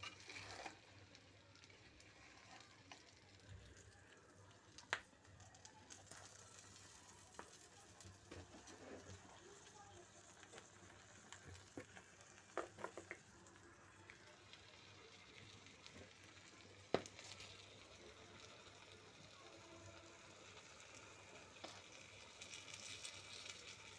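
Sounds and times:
spatula scraping pan: 0.0 - 0.9
food sizzling in oil: 0.0 - 23.9.

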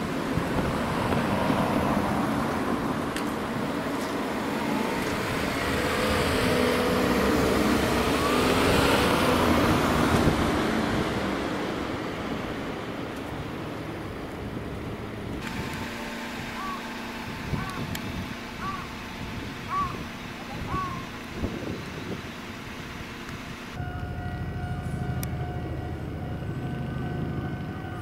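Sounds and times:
vehicle passing by: 0.1 - 13.8.

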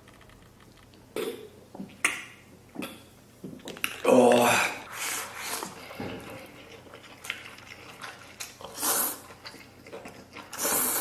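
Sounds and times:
chewing: 5.0 - 11.0
person slurping noodles: 8.6 - 9.4, 10.4 - 11.0.

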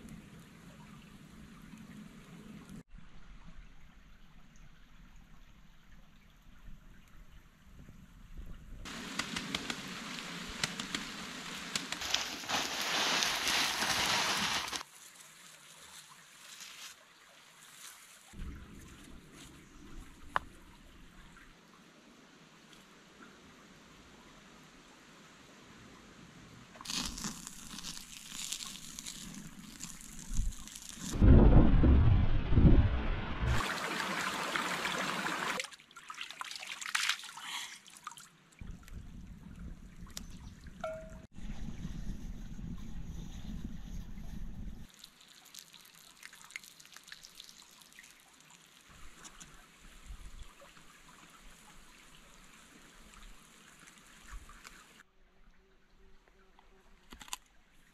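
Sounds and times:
creek water trickling: 0.0 - 8.2, 8.8 - 23.8, 26.8 - 31.2, 33.5 - 41.3, 44.8 - 57.9
hand brushing across gravel: 9.0 - 15.2
gravel pouring onto a pile: 11.8 - 14.9
low rumble: 31.2 - 33.6, 41.4 - 44.9.

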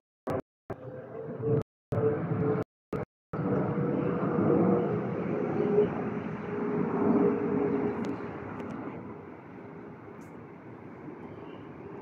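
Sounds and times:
jet airliner passing overhead: 3.4 - 12.0.

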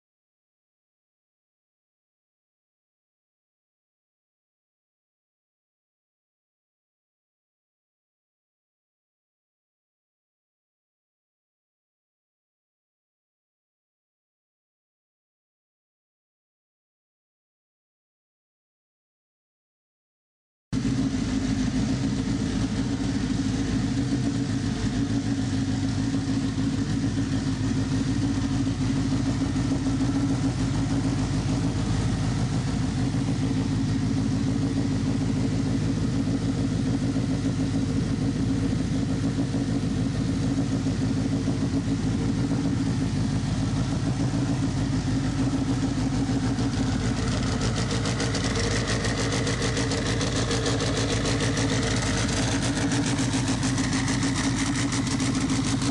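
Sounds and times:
car engine idling: 20.8 - 55.9.

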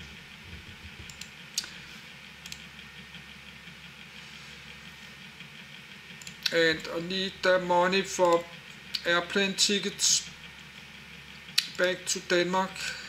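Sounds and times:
low steady hum: 0.0 - 13.0
computer clicks: 1.0 - 1.7, 2.4 - 2.6, 6.2 - 6.6, 8.2 - 9.1.

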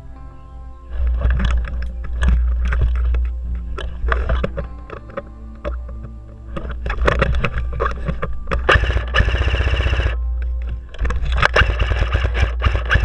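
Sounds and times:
steady low rumble: 0.0 - 13.0
sharp clicks and knocks: 0.9 - 13.0
airsoft gun rapid burst: 8.7 - 10.2, 11.6 - 13.0.

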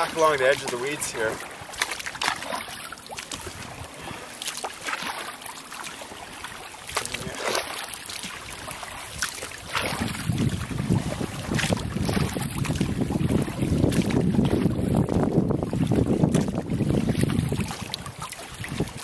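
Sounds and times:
paddle splashing in water: 0.0 - 19.0
wind buffeting microphone: 3.3 - 4.2, 8.3 - 19.0.

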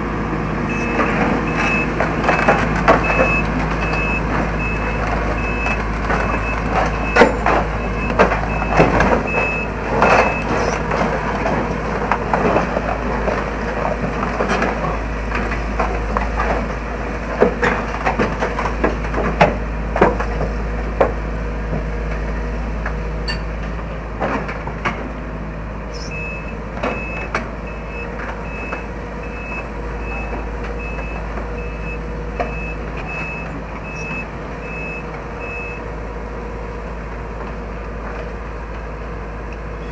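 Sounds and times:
excavator engine running: 0.0 - 39.9
travel alarm beeping: 0.7 - 10.8, 26.0 - 35.8
tracks clanking on steel plates: 0.7 - 21.2.

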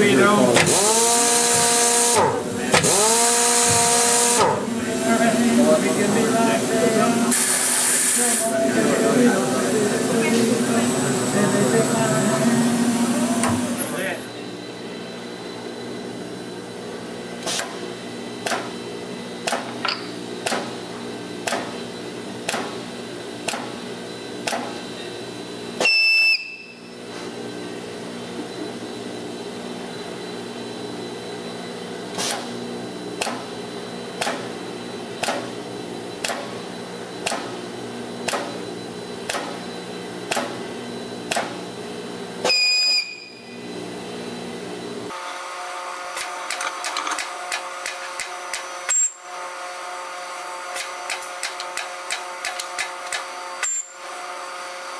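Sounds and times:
machinery humming: 0.0 - 17.3
sharp click: 50.8 - 53.8.

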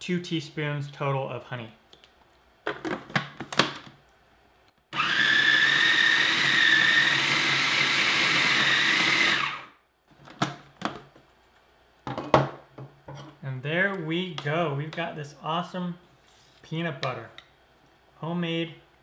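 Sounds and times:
food processor motor whining: 4.9 - 9.7.

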